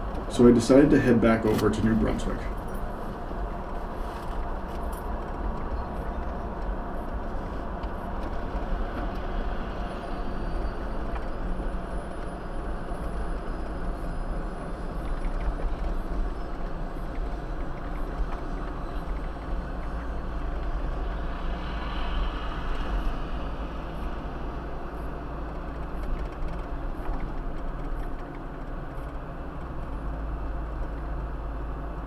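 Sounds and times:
car driving rumble: 0:00.0 - 0:32.0.

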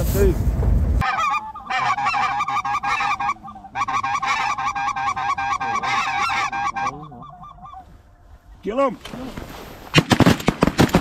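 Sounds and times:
geese honking: 0:01.0 - 0:08.6.

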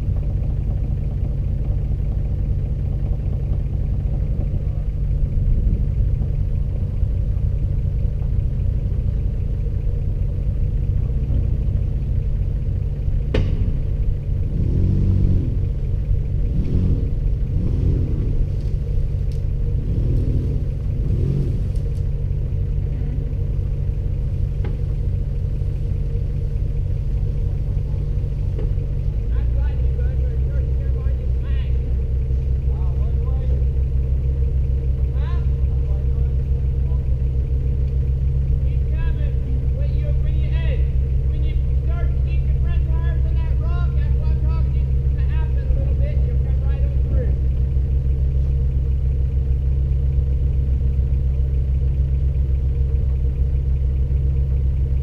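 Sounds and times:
engine low rumble: 0:00.0 - 0:55.0.

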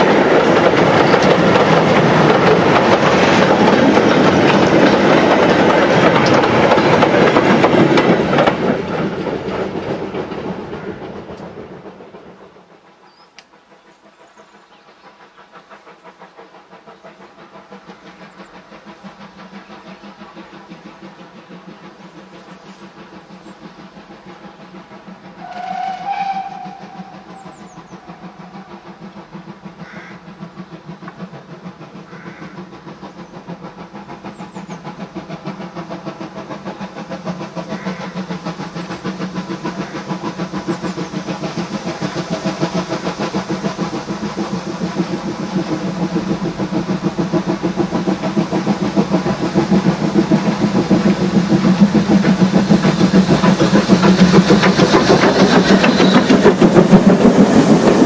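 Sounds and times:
steam locomotive exhaust pulsing: 0:00.0 - 0:58.0
steam whistle: 0:25.4 - 0:28.8.

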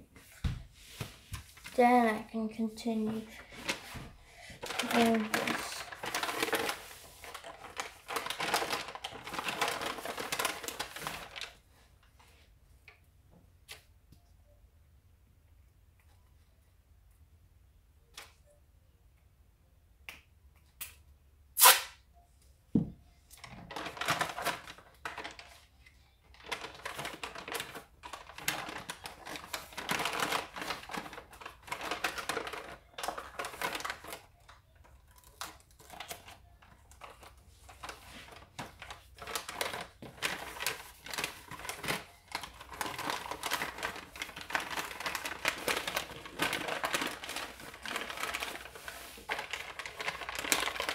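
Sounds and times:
wrapping paper crinkling: 0:00.8 - 0:12.4, 0:23.4 - 0:50.9.

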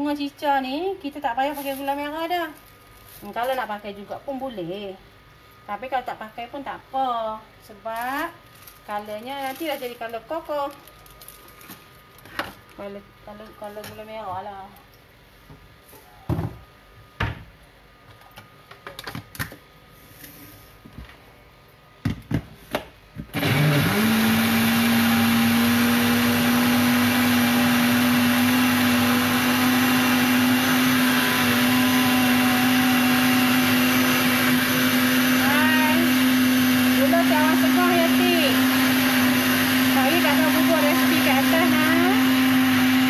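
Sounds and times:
electric blender running: 0:23.3 - 0:43.0.

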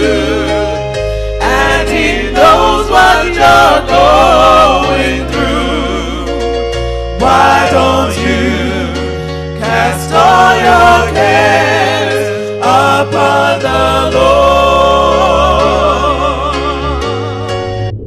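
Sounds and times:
gospel voices singing: 0:00.0 - 0:17.6
steady bass notes: 0:00.0 - 0:18.0.

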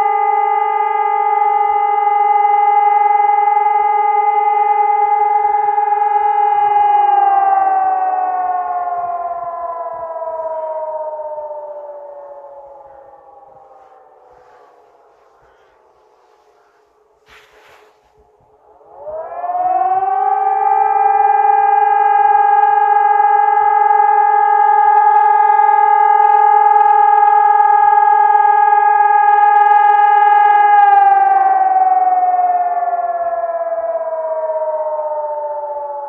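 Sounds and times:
civil defence sirens wailing: 0:00.0 - 0:36.0.

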